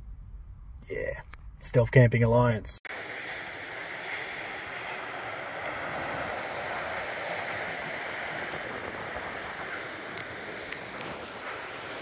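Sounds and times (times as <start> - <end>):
steady rushing noise: 2.9 - 12.0.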